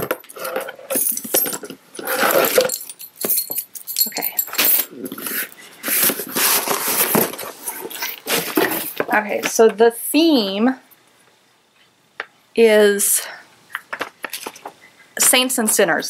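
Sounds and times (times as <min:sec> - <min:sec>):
tape and paper crinkling: 0:04.5 - 0:09.1
cardboard box being opened: 0:05.8 - 0:09.0.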